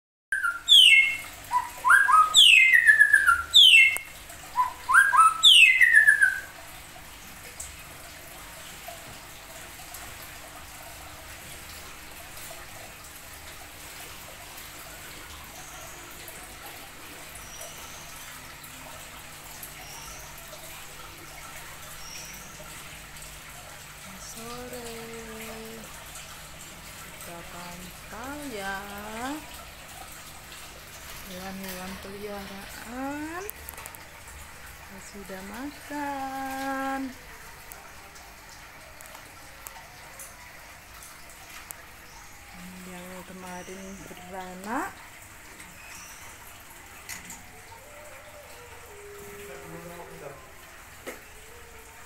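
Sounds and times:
songbird singing whistled phrases: 0.3s - 6.5s.

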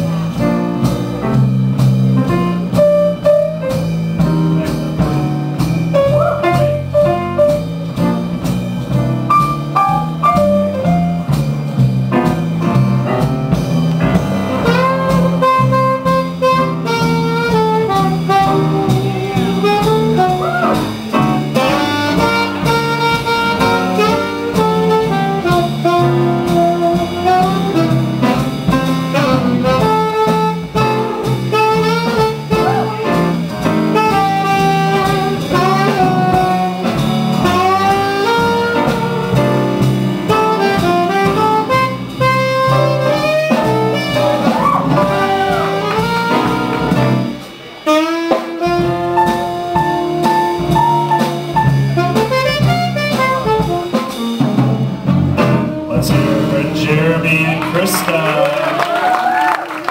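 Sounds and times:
drum beat: 0.0s - 59.9s
saxophone: 6.0s - 7.0s, 14.6s - 54.2s.

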